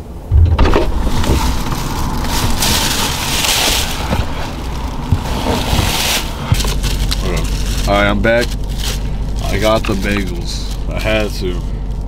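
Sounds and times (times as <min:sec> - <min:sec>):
steady outdoor hiss: 0:00.0 - 0:12.0
thump: 0:00.3 - 0:01.5
rustling and handling noise: 0:00.7 - 0:12.0.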